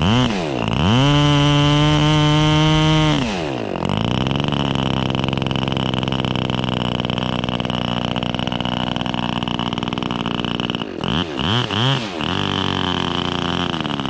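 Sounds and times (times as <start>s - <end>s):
model engine idling: 3.5s - 14.0s.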